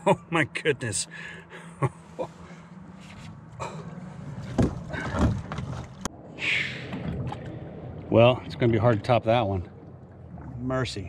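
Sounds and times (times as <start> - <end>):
knocks against boat: 4.4 - 5.9.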